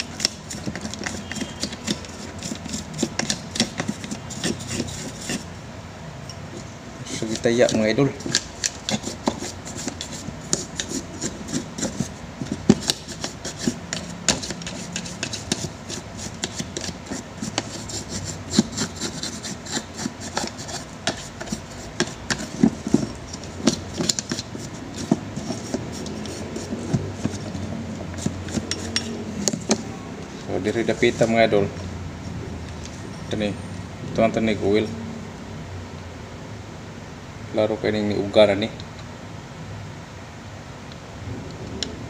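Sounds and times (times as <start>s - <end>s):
knocks of plastic and metal parts: 0.0s - 4.9s, 19.8s - 26.0s
stiff brush scrubbing: 0.0s - 5.5s, 7.1s - 31.5s.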